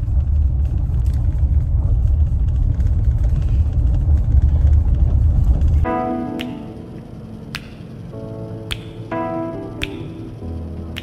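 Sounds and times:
car driving rumble inside cabin: 0:00.0 - 0:05.9.

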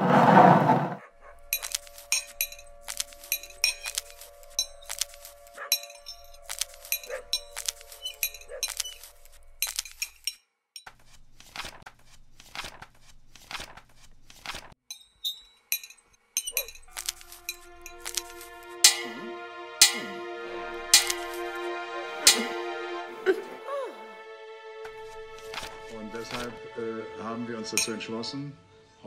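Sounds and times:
sustained musical tones: 0:01.5 - 0:09.6, 0:17.0 - 0:29.0
cutlery clinking on plate: 0:21.0 - 0:21.4.

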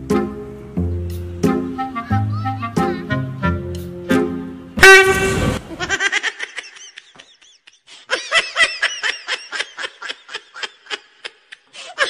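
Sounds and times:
snickering laughter: 0:05.7 - 0:12.0.

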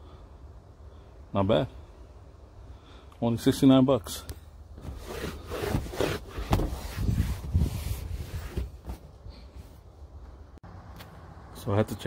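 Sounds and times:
towel wiping upholstery: 0:04.8 - 0:09.0.

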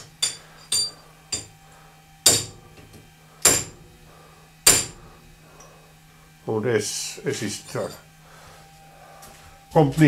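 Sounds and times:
metal-on-metal knocks: 0:00.0 - 0:01.6, 0:02.3 - 0:02.9.

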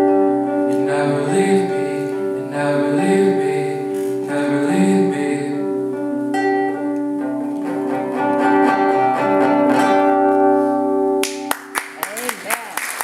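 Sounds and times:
acoustic guitar chords: 0:00.0 - 0:12.0
applause: 0:11.2 - 0:13.0.

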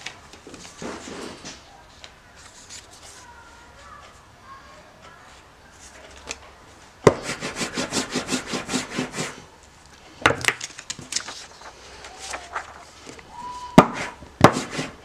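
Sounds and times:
rubber roller rasping over ink: 0:07.1 - 0:09.4, 0:13.8 - 0:15.0.

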